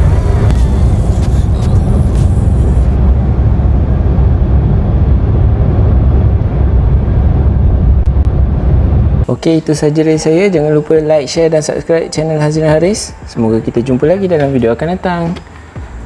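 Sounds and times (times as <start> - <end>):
high hiss: 0.0 - 3.0
car cabin road noise: 0.0 - 9.3, 12.1 - 16.0.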